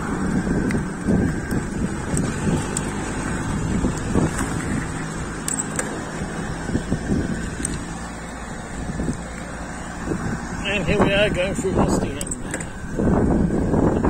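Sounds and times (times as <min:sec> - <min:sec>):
road noise: 0:00.0 - 0:14.0
wind rushing over microphone: 0:00.0 - 0:14.0.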